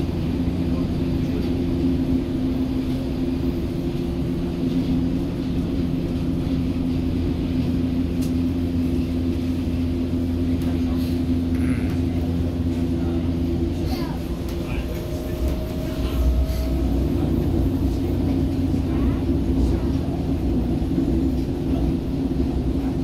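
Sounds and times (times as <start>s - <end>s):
train drive hum: 0.0s - 23.0s
train rolling noise: 0.0s - 23.0s.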